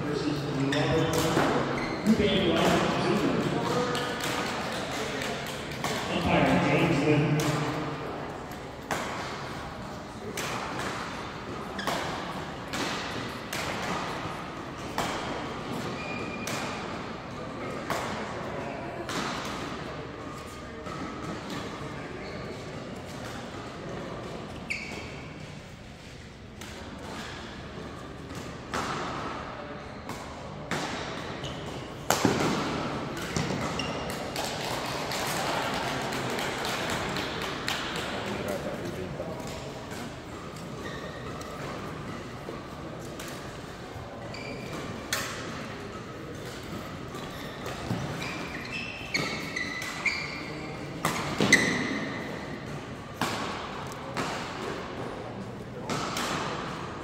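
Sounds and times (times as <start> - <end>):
sneakers squeaking on court: 0.4 - 3.4, 15.8 - 16.7, 24.6 - 25.3, 32.8 - 34.2, 44.2 - 45.4, 46.3 - 52.4
rackets hitting shuttlecock: 0.8 - 18.4, 28.2 - 43.8, 44.6 - 55.1, 55.8 - 56.9
rackets striking shuttlecock: 10.3 - 11.2.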